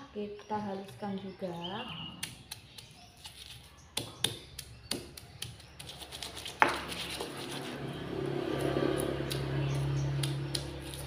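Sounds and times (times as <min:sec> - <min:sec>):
stone pestle knocking and grinding: 0:04.0 - 0:07.5.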